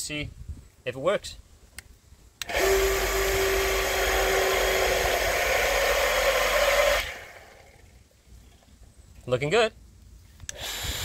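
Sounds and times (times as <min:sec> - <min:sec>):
electric water pump whirring: 0:02.4 - 0:08.0, 0:10.5 - 0:11.0.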